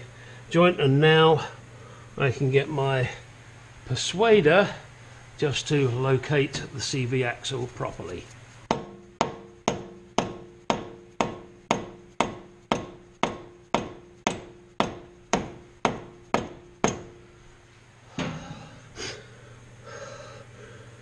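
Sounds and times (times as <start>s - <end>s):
hammer striking metal axle: 8.7s - 17.2s.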